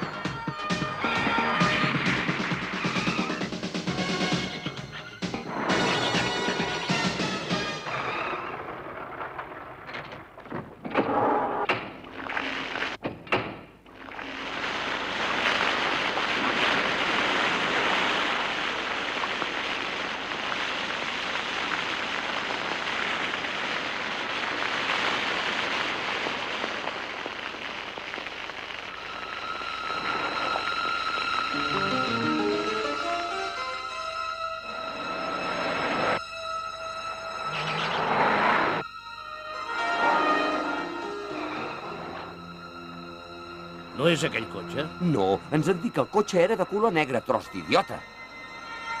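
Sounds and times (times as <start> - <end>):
knocks and clatters: 8.3 - 13.8
liquid spraying over car: 14.0 - 31.4.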